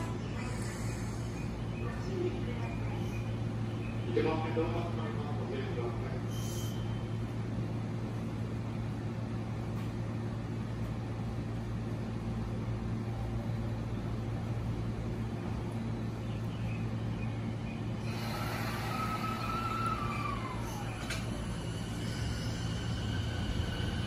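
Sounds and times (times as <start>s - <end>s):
train electrical hum: 0.0s - 24.0s
hiss: 18.0s - 24.0s.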